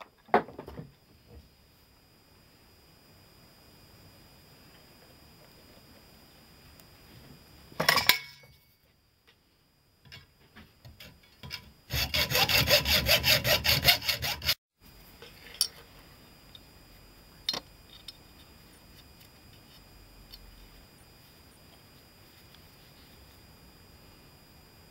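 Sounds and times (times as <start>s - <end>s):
rubbing strokes on metal part: 11.9s - 14.6s.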